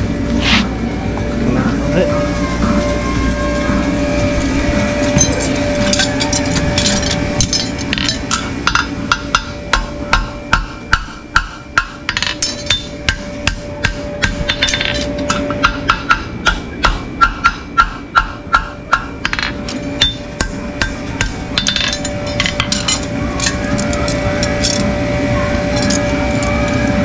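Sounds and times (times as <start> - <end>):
hammer striking metal: 5.0 - 24.8.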